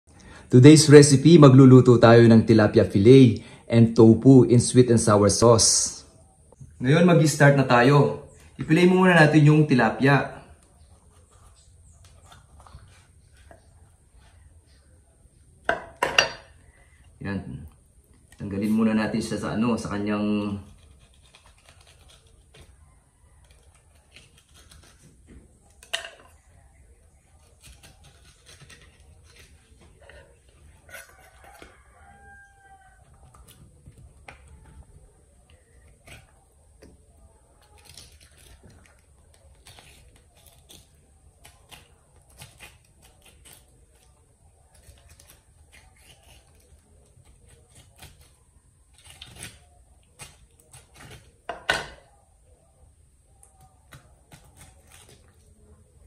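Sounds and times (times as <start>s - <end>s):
knife scraping on cutting board: 27.7s - 31.7s.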